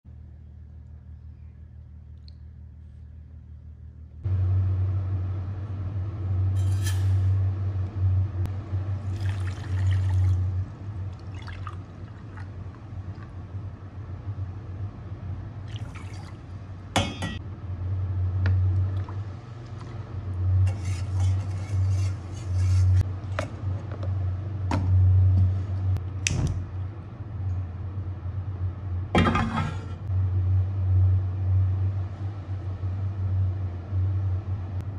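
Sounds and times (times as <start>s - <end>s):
water pouring into pot: 9.0s - 12.8s.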